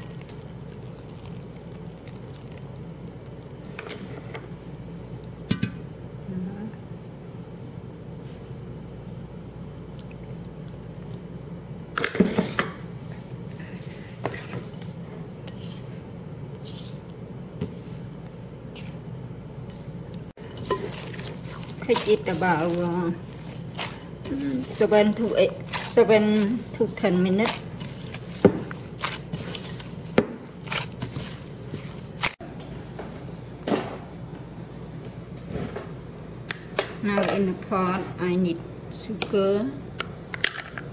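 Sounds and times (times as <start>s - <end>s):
steady low hum: 0.0s - 40.9s
hand kneading dough: 20.6s - 32.4s.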